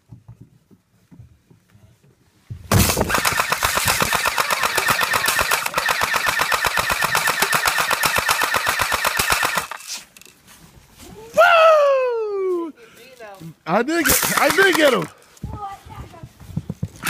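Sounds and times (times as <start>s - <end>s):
airsoft gun firing full auto: 2.7s - 9.8s, 14.1s - 15.1s.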